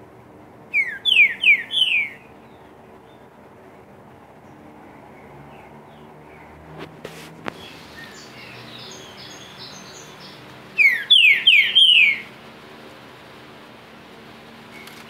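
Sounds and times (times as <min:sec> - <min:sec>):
bird singing whistled notes: 0:00.7 - 0:03.3, 0:07.6 - 0:12.3.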